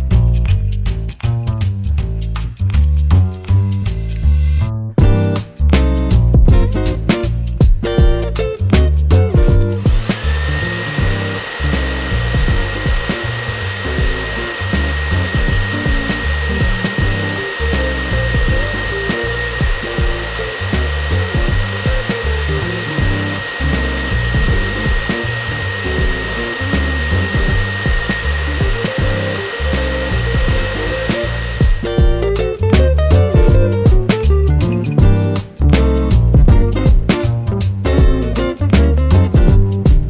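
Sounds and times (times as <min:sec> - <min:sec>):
pet dryer blowing air with high whine: 0:09.4 - 0:32.2.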